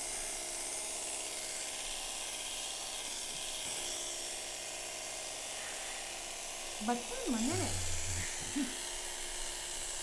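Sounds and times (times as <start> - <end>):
electric hair clippers buzzing: 0.0 - 10.0.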